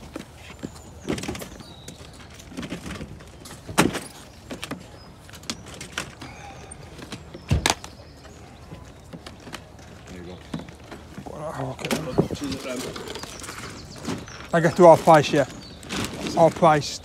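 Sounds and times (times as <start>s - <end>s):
plastic crates knocking and clattering: 0.0s - 17.0s.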